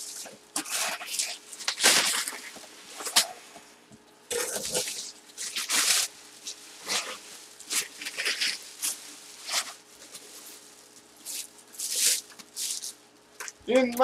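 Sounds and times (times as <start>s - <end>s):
plastic bag crinkling: 4.3s - 14.0s.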